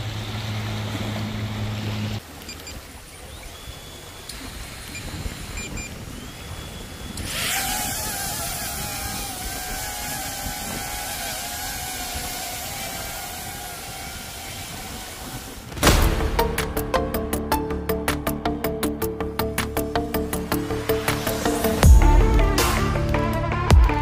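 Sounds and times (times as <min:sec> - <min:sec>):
surf on rocks: 0:00.0 - 0:16.4
drone propellers whining: 0:03.3 - 0:15.8.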